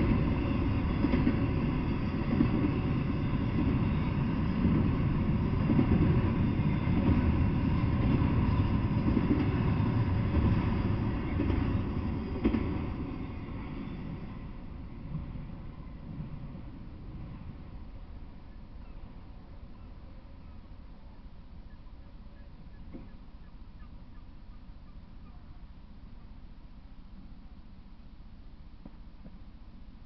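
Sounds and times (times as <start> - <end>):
freight train rolling past: 0.0 - 21.6.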